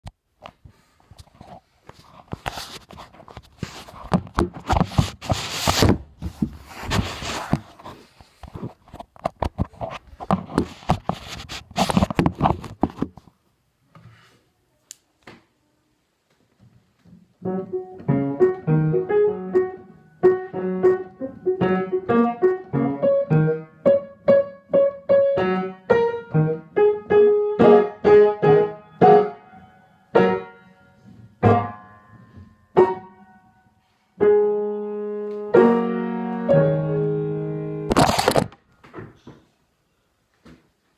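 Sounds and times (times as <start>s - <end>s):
recording device handling noise: 0.0s - 14.1s, 37.9s - 39.5s
slow piano melody: 17.4s - 37.9s.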